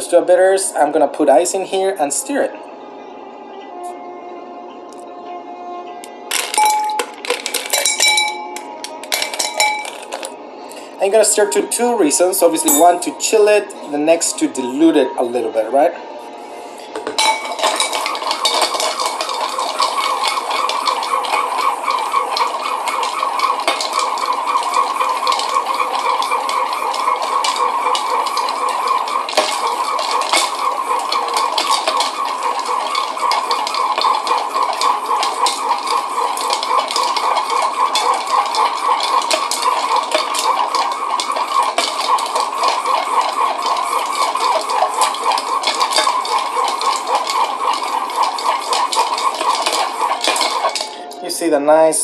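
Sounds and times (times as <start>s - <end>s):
ice cubes clinking in glass: 6.1s - 10.8s, 12.6s - 13.1s, 16.8s - 51.2s.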